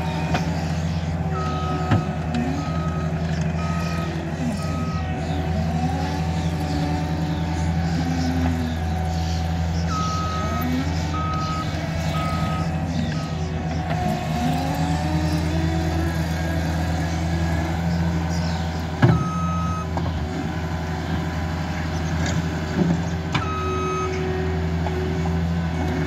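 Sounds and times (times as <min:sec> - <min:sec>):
reversing alarm beeps: 0:00.0 - 0:08.9, 0:09.6 - 0:15.5, 0:19.0 - 0:20.0, 0:23.4 - 0:24.3
diesel engine under load: 0:00.0 - 0:26.0.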